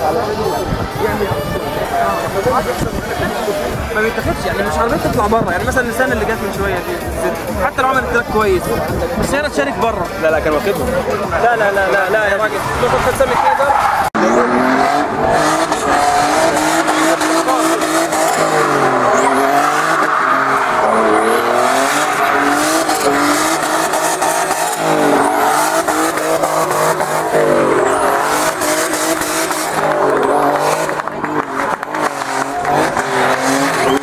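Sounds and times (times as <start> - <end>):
car engine revving: 0.0 - 34.0
tyres squealing: 12.6 - 34.0.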